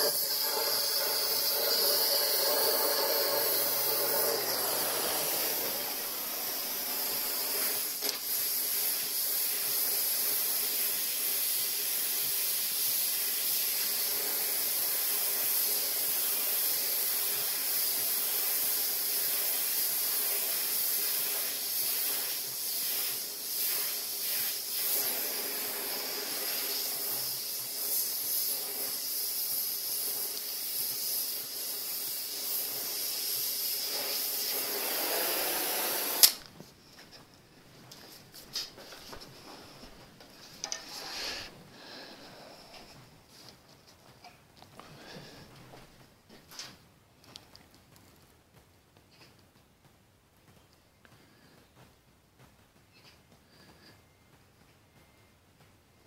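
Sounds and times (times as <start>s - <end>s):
torch shutting off pop: 0.0s - 10.2s, 31.6s - 36.5s
gas torch flame hissing: 0.0s - 36.5s, 38.4s - 43.0s.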